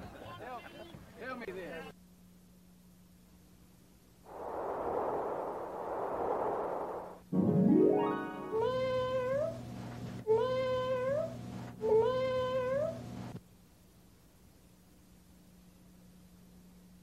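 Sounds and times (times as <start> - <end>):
rising sweep: 4.3 - 8.6
held notes bending upward: 7.3 - 9.4.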